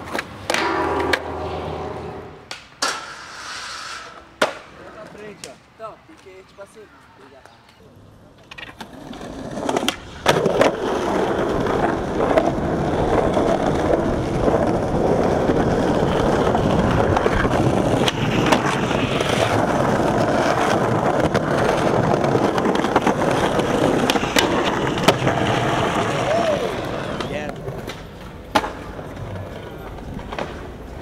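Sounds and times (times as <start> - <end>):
skateboard wheels rolling on concrete: 0.0 - 31.0
skateboard tail popping: 2.5 - 5.6, 8.4 - 31.0
skateboard clicks: 7.6 - 31.0.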